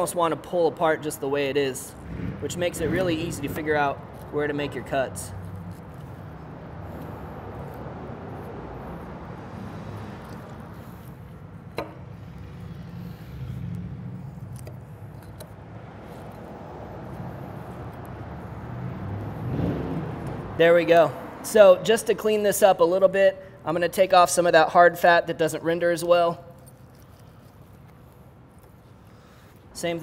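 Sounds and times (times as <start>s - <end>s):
knife cutting meat on board: 10.0s - 17.2s.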